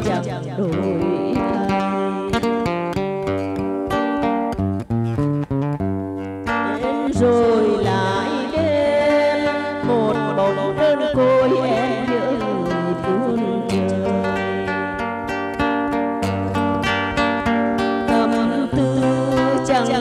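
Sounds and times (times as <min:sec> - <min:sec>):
woman singing with vibrato: 0:00.0 - 0:02.9, 0:06.5 - 0:15.0, 0:18.0 - 0:20.0
acoustic guitar plucking: 0:00.0 - 0:20.0.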